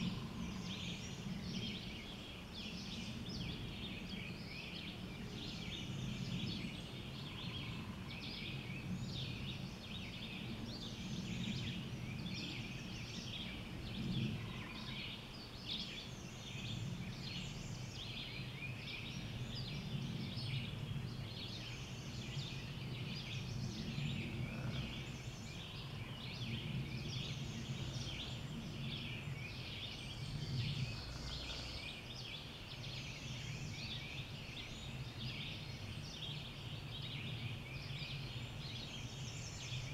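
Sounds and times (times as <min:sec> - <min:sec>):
songbirds chirping and trilling: 0:00.0 - 0:39.9
steady low rumble: 0:16.4 - 0:39.7.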